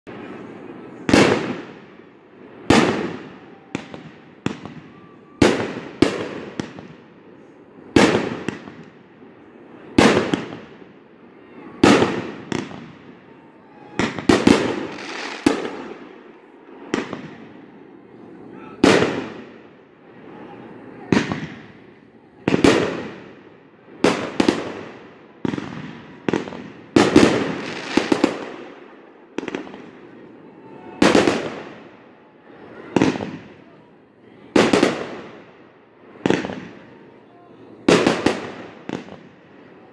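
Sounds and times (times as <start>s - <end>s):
fireworks bangs: 0.1s - 39.9s.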